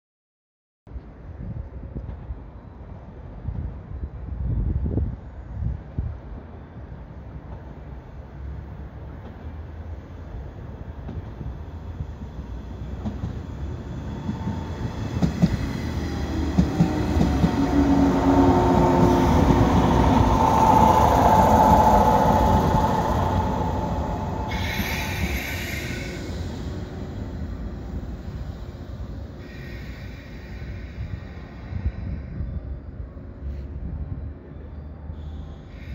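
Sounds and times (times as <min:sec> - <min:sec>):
electric train running: 0:12.9 - 0:30.6.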